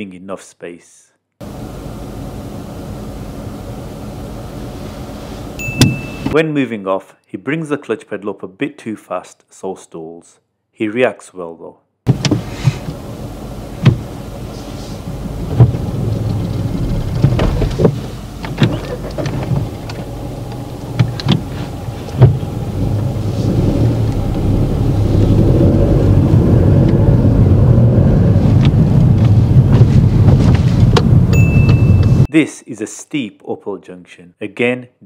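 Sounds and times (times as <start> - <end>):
clicks and knocks from car controls: 12.1 - 12.9, 15.5 - 21.5, 28.6 - 32.2
car engine running: 12.1 - 32.3
road noise: 12.1 - 32.3.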